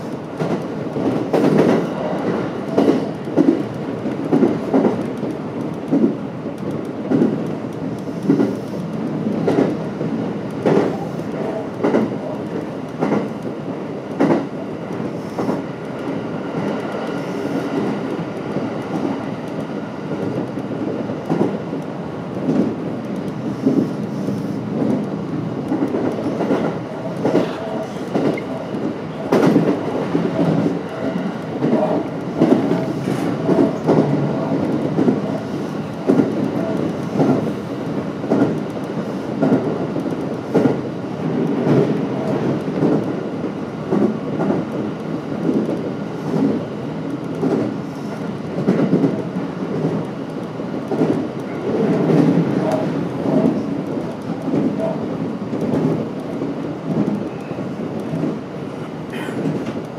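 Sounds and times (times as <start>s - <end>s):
train wheels clicking over rail joints: 0.0s - 13.5s
train running rumble: 0.0s - 59.9s.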